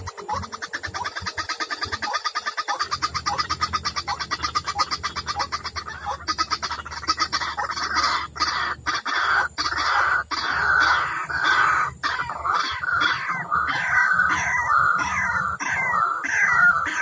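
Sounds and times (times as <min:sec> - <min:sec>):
bird harsh croaking calls: 0:00.0 - 0:17.0
bird rattling call: 0:00.0 - 0:17.0.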